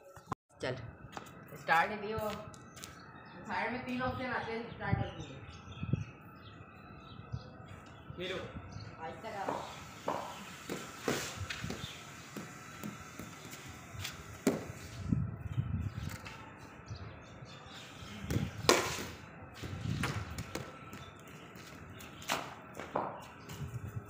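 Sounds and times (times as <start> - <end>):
scuffs on concrete: 1.1 - 1.6, 2.2 - 3.1, 9.4 - 15.2, 18.0 - 24.0
ball and bat knocks on concrete: 9.4 - 13.4, 14.4 - 14.7, 18.3 - 20.7, 22.3 - 23.2.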